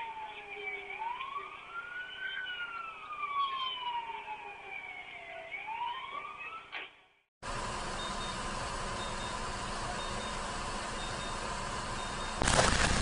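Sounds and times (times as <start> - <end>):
police siren wailing: 0.0 - 6.9.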